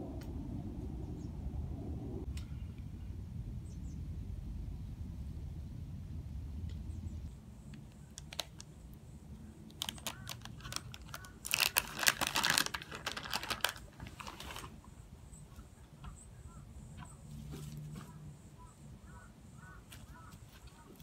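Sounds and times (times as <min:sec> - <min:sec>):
packaging crackling and rustling: 0:08.2 - 0:08.7, 0:09.7 - 0:14.8.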